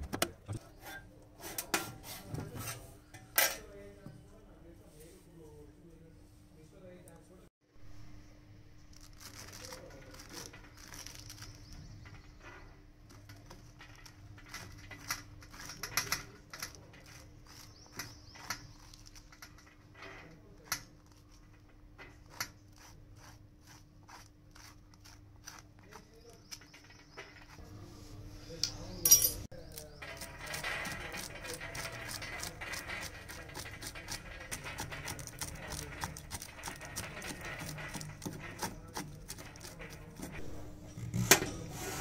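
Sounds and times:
spoon scraping papaya seeds: 22.2s - 27.6s, 29.5s - 40.8s
seeds clicking on steel tray: 29.6s - 40.4s.

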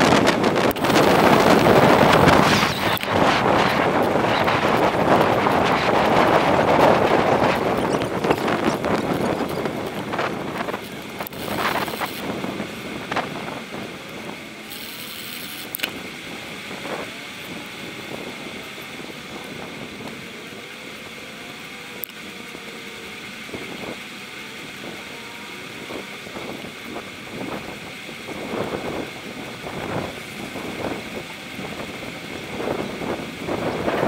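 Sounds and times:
wind rushing over microphone: 0.0s - 21.8s, 23.3s - 34.0s
tyre and road noise: 0.0s - 34.0s
sharp clicks: 14.7s - 16.0s.

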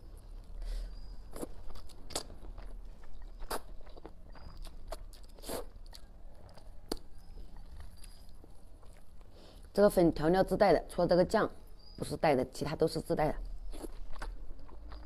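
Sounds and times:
person slurping and chewing noodles: 0.1s - 9.7s, 13.7s - 15.0s.

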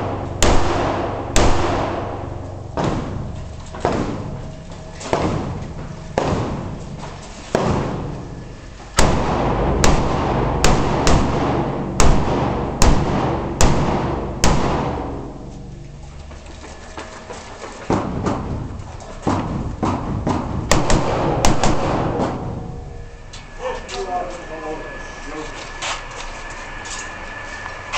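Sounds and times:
rifle shots echoing indoors: 0.0s - 4.2s, 7.5s - 15.7s, 20.7s - 22.6s.

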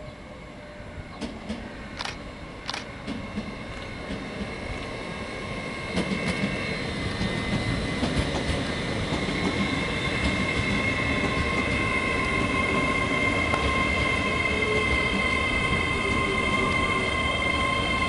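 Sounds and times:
train wheels rumbling on rails: 0.0s - 18.0s.

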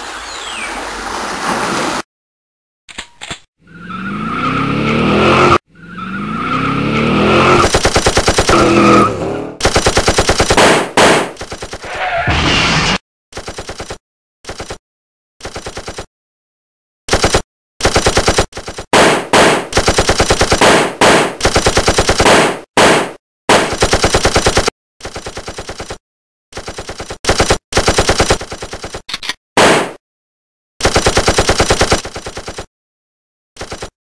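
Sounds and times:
machine-gun automatic fire bursts: 7.6s - 8.7s, 9.6s - 11.8s, 17.1s - 26.0s, 26.6s - 29.0s, 30.8s - 32.7s.

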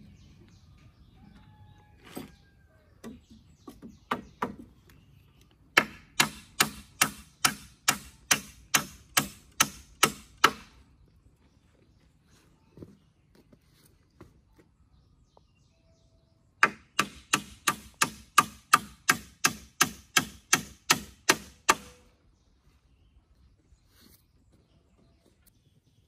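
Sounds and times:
hammer striking nail into wood: 5.8s - 10.7s, 16.6s - 22.0s.

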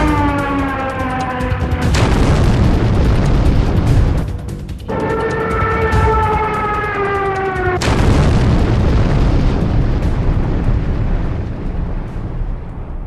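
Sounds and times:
explosion with heavy rumble: 1.7s - 4.3s, 7.6s - 13.0s
tone sliding down in pitch: 4.9s - 7.7s.

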